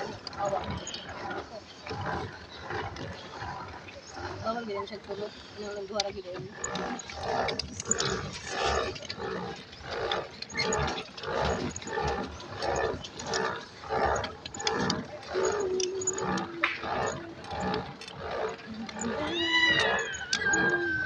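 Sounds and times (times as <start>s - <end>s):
pedal boat rhythmic pedalling: 0.0s - 21.0s
squeak-like tone: 19.0s - 21.0s.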